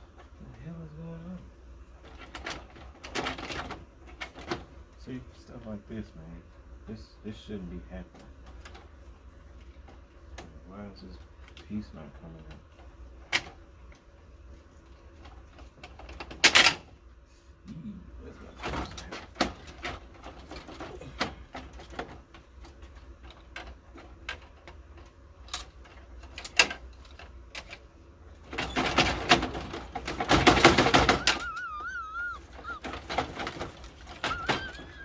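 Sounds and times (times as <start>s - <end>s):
printer parts clicking and rattling: 2.0s - 4.7s, 15.2s - 16.8s, 18.6s - 27.8s, 28.5s - 35.0s
rattling and scraping: 28.4s - 35.0s.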